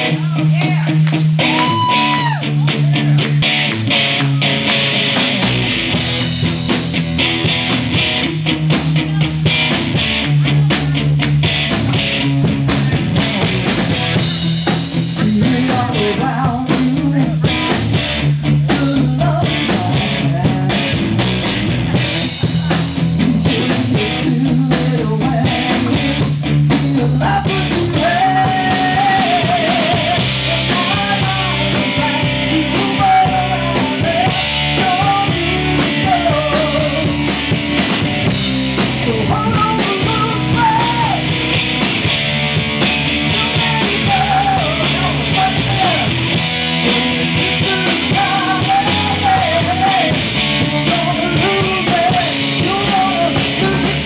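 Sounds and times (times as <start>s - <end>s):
drum kit: 0.0s - 54.0s
electric bass: 0.0s - 54.0s
electric guitar: 0.0s - 54.0s
woman singing: 15.1s - 17.5s, 18.7s - 21.0s, 23.2s - 37.2s, 43.3s - 46.1s, 46.8s - 54.0s.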